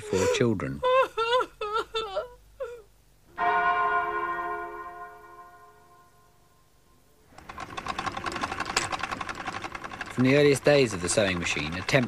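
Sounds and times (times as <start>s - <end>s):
church bell stroke: 3.4s - 6.6s
sewing machine clatter: 7.3s - 12.0s.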